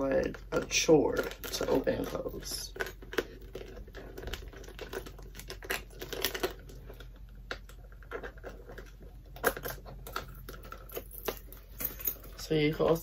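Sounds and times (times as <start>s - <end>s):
bag chain and hooks clicking: 8.1s - 12.6s.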